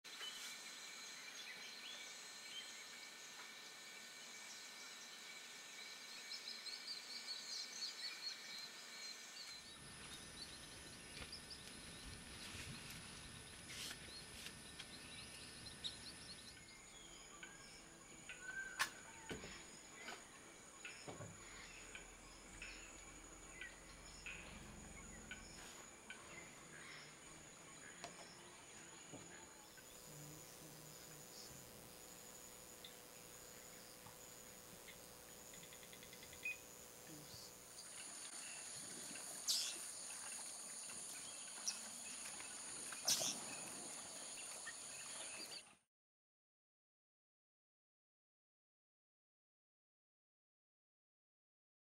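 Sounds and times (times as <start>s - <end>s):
insect drone: 0.1s - 45.6s
bird chirps: 13.7s - 31.6s, 34.8s - 38.7s, 39.4s - 39.8s, 43.0s - 43.6s.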